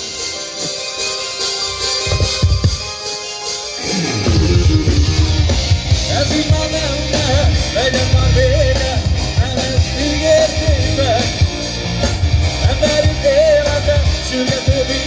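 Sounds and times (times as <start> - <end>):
live rock band playing: 0.0 - 15.0
male lead singer: 3.8 - 15.0.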